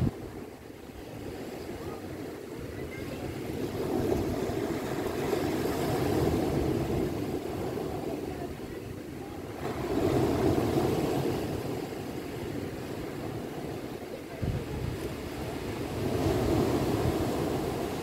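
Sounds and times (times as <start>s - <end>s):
waves breaking on stony beach: 0.0s - 18.0s.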